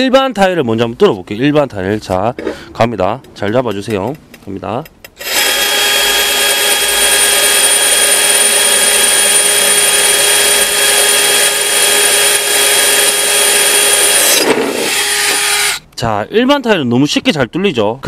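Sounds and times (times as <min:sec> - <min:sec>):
drill grinding into ceramic tile: 0:05.2 - 0:15.8.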